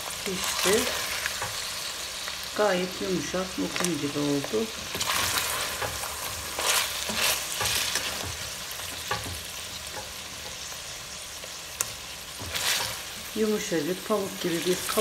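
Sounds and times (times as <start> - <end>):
meat sizzling: 0.0 - 15.0
wooden spoon scraping pot: 4.8 - 10.7, 12.3 - 13.3.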